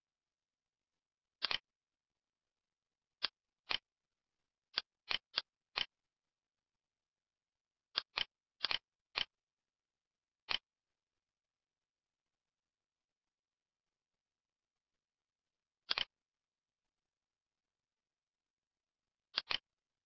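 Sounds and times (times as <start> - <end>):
computer mouse clicks: 1.4 - 1.7, 3.2 - 3.9, 4.7 - 6.0, 7.9 - 9.4, 10.4 - 10.7, 15.8 - 16.2, 19.3 - 19.8.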